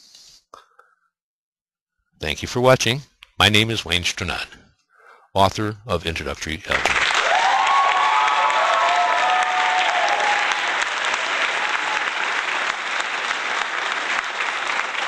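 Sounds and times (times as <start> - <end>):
crowd clapping: 6.7 - 15.0.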